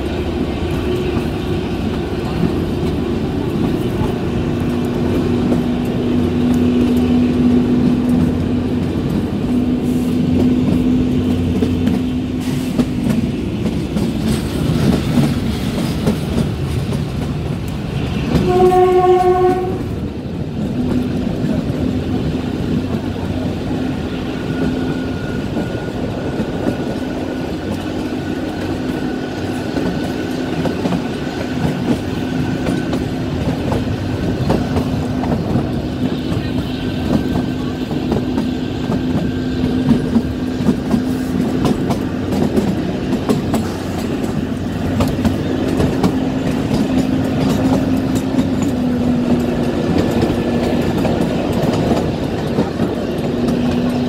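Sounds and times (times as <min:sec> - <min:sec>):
train wheels clattering on rails: 0:00.0 - 0:54.0
train horn: 0:18.3 - 0:20.0.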